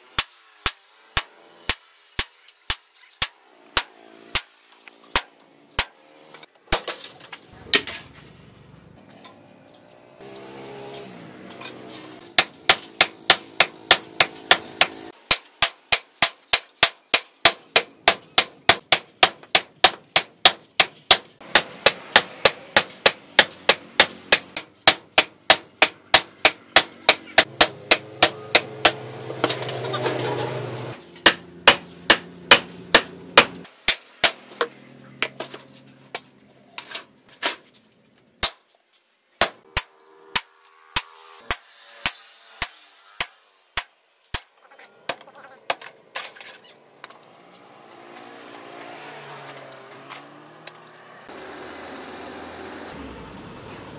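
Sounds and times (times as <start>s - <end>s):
hammer striking hot steel on anvil: 12.3s - 29.7s, 39.4s - 44.5s.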